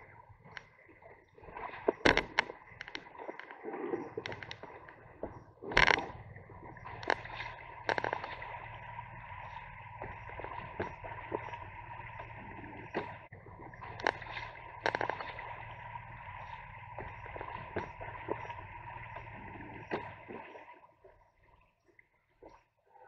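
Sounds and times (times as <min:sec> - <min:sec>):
river water gurgling and splashing: 0:00.0 - 0:23.0
sharp knocks and clicks: 0:01.8 - 0:08.6, 0:10.0 - 0:11.6, 0:12.2 - 0:15.6.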